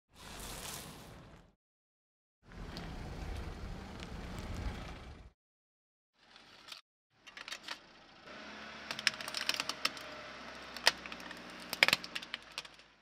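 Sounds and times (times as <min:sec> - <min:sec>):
plastic toy cracking: 0:08.9 - 0:10.1, 0:10.7 - 0:12.9.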